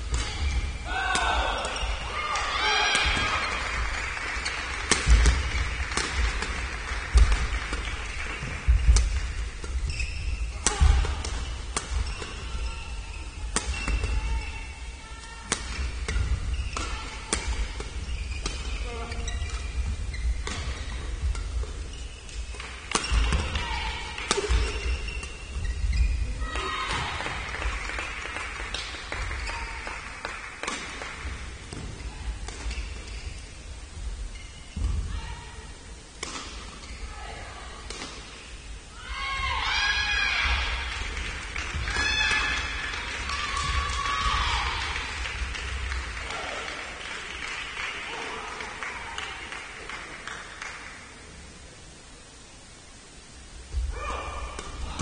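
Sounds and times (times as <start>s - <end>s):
badminton shuttle hit: 4.8s - 6.6s, 13.5s - 14.5s, 15.5s - 18.8s, 20.4s - 25.6s, 30.6s - 31.8s, 36.2s - 36.9s, 37.8s - 38.5s
rackets striking shuttlecock: 4.8s - 8.0s, 8.7s - 12.6s, 13.4s - 14.2s, 20.4s - 23.6s, 30.2s - 33.2s, 36.2s - 36.9s, 37.8s - 38.4s
shoes squeaking on court: 8.7s - 14.7s, 15.7s - 23.5s, 24.3s - 26.4s, 32.5s - 33.6s, 36.7s - 37.1s
clapping and cheering: 27.2s - 31.2s, 40.8s - 51.1s.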